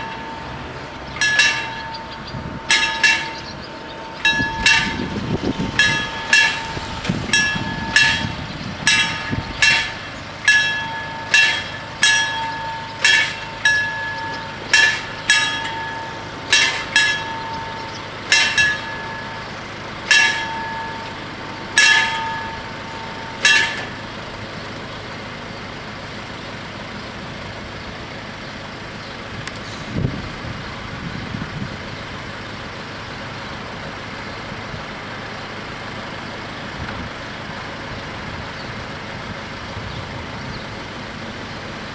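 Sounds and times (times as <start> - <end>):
low rumble: 0.0 - 24.7
level-crossing warning bells ringing: 0.0 - 29.5, 30.2 - 41.9
road vehicle engines: 0.0 - 41.9.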